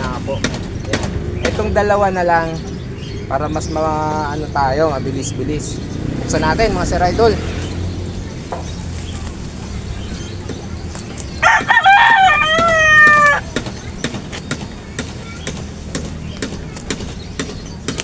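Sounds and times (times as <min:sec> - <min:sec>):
rooster crowing: 0:11.4 - 0:13.6.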